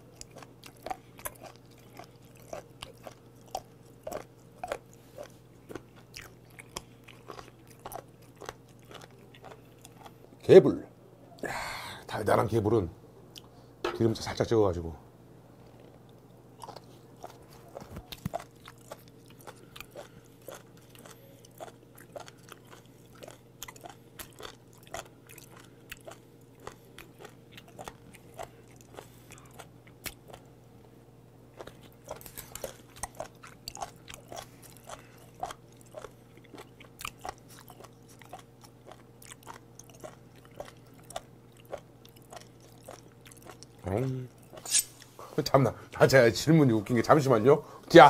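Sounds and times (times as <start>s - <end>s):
wet chewing clicks: 0.0s - 10.2s, 15.9s - 30.5s, 31.6s - 45.0s
faint steady hum: 0.0s - 48.0s.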